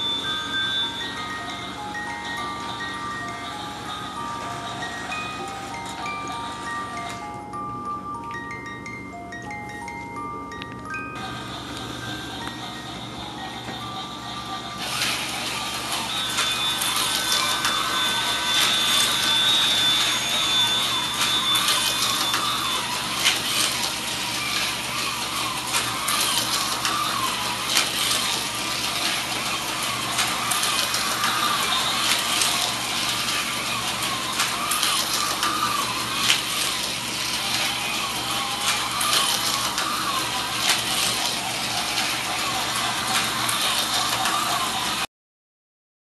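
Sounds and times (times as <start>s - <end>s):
toy train motor whirring: 0.0s - 7.6s, 10.9s - 45.1s
wheels clicking over rail joints: 21.2s - 45.0s.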